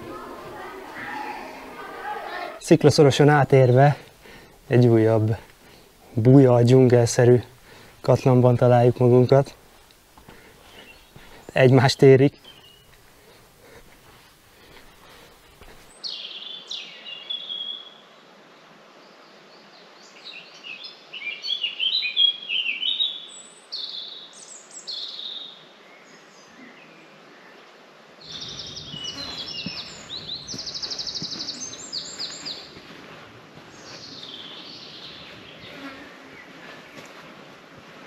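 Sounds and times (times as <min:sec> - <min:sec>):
low rushing noise: 0:00.0 - 0:02.9
songbirds singing: 0:00.0 - 0:18.0, 0:19.0 - 0:27.6, 0:28.2 - 0:37.3.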